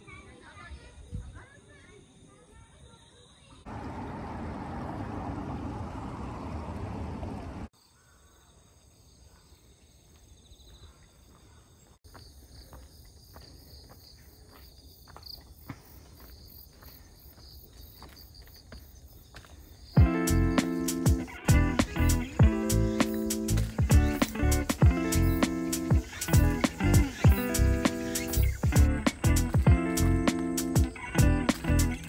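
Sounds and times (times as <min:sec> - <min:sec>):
insects chirping and trilling: 0:07.8 - 0:32.0
footsteps on stone: 0:10.1 - 0:20.2, 0:23.5 - 0:25.0
fast pulsing insect chirp: 0:12.1 - 0:32.0.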